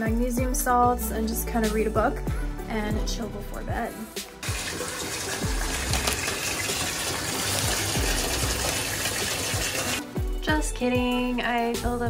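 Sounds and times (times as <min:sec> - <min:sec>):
tap water gushing into bathtub: 0:04.4 - 0:10.1.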